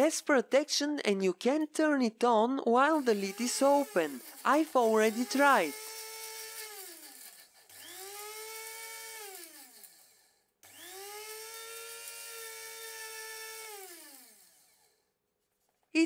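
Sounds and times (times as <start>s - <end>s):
electric blade grinder whining: 2.9s - 15.0s.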